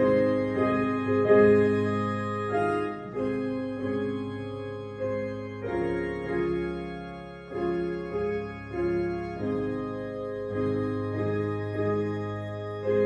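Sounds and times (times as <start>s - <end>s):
church keyboard slow chords: 0.0s - 13.0s.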